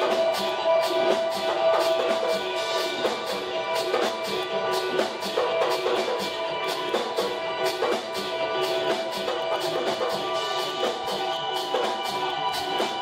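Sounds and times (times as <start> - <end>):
conga drums: 0.0 - 13.0
electric guitar: 0.0 - 13.0.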